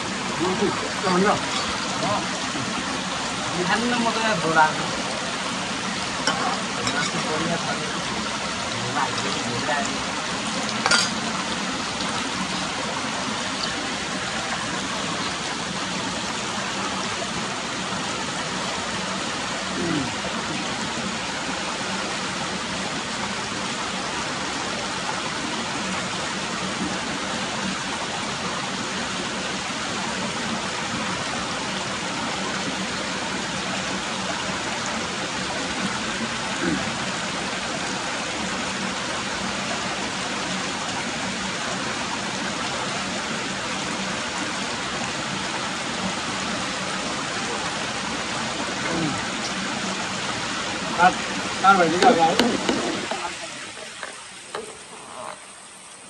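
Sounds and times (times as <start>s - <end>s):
river water rushing: 0.0s - 56.0s.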